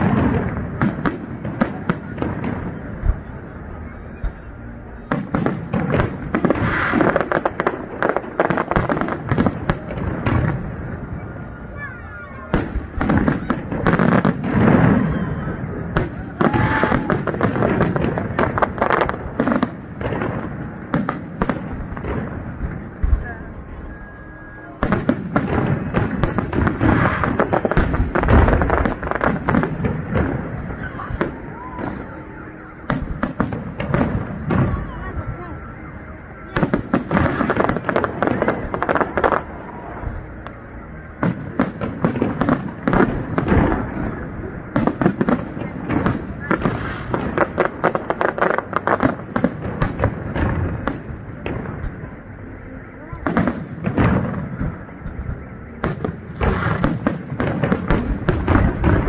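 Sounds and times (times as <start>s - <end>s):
deep firework boom: 0.0s - 3.4s
firework bursts and crackles: 0.0s - 59.0s.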